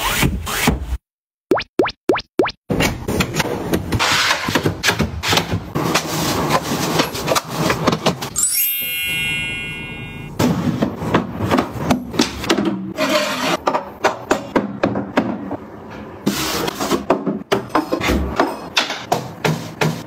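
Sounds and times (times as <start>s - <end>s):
clear ringing tone: 8.3s - 10.4s.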